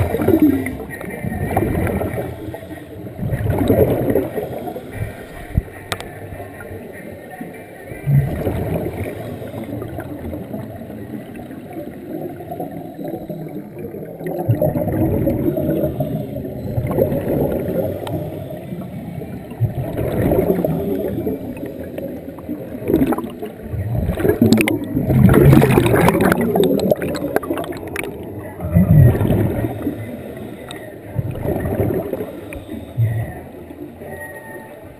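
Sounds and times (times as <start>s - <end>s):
air bubbling underwater: 0.0s - 2.5s, 3.1s - 6.0s, 8.0s - 10.6s, 12.1s - 30.1s, 31.2s - 33.5s.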